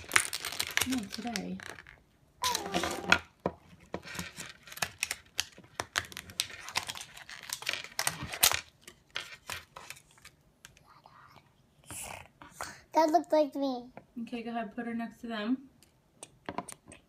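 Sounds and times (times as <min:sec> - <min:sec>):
plastic packets crinkling: 0:00.0 - 0:03.3, 0:04.0 - 0:10.4.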